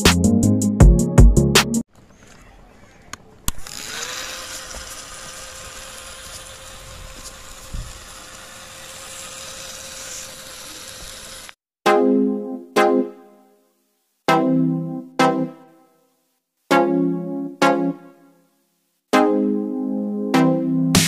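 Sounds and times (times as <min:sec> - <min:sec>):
small motor whining: 0:03.5 - 0:11.6.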